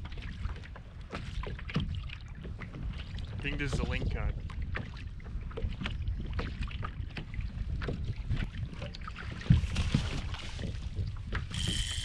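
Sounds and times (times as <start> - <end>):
water sounds: 0.0 - 12.0
wind buffeting microphone: 0.0 - 12.0.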